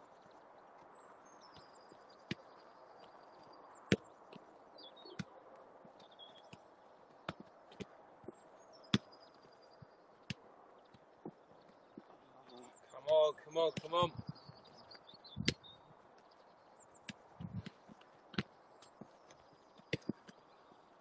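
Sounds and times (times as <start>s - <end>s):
football kick thuds: 7.2s - 9.1s, 17.4s - 19.1s, 19.8s - 20.2s.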